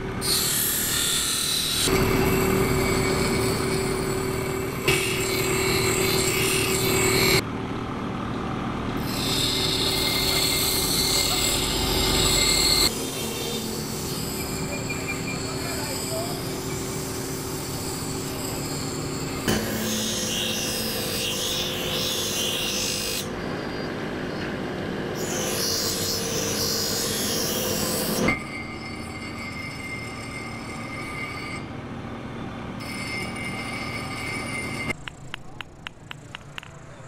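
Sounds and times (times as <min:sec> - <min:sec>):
blade hissing on grinding wheel: 0:00.2 - 0:07.4, 0:09.0 - 0:24.4
grinding wheel spinning: 0:01.8 - 0:07.4, 0:09.0 - 0:24.4, 0:25.2 - 0:31.7, 0:32.8 - 0:37.0.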